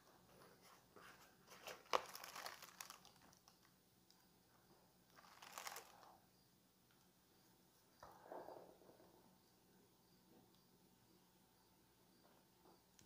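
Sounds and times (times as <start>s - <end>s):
paper and plastic bag crinkling: 0.6s - 3.7s, 5.1s - 6.2s
sharp paper crackle: 1.5s - 3.7s, 5.1s - 6.2s.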